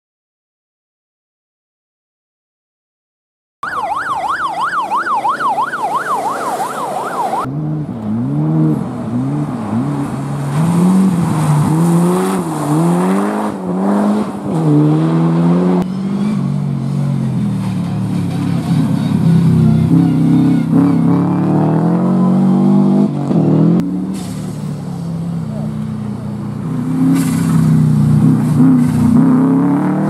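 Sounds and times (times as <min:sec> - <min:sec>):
siren wailing: 0:03.6 - 0:07.5
rally car engines revving: 0:05.5 - 0:30.0.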